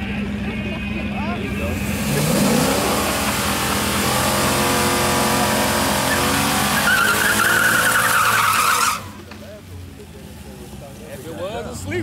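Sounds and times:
car engine revving: 0.0s - 9.4s.

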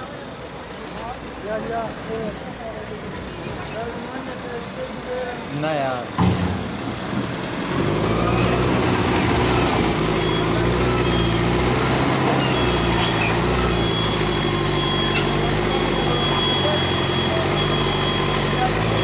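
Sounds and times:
diesel engine running: 1.2s - 19.0s.

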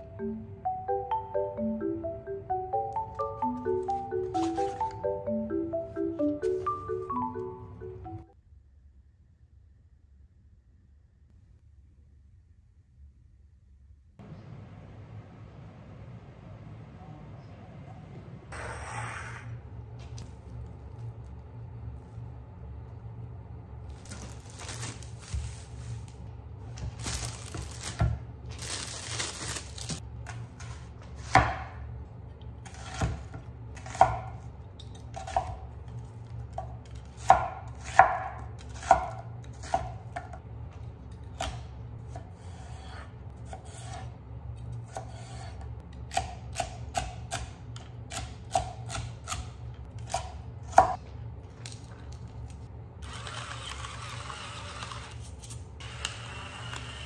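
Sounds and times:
knife chopping on wooden board: 30.6s - 31.8s, 36.5s - 40.3s.

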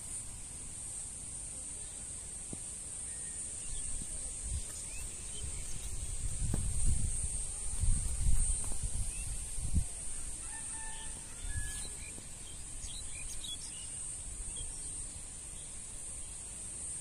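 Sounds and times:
steady high hiss: 0.0s - 17.0s
birds chirping: 3.0s - 6.6s, 8.3s - 16.4s
wind buffeting microphone: 3.7s - 11.7s.

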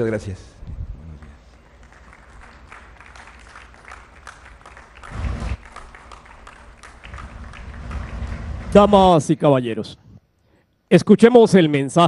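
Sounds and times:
applause: 1.2s - 9.1s
low rumble: 7.0s - 9.1s.

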